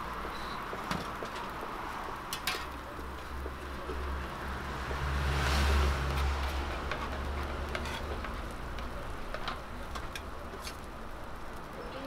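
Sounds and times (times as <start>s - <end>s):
rice sizzling on griddle: 0.0s - 12.0s
spatulas clicking and scraping: 2.2s - 3.4s, 6.0s - 11.0s.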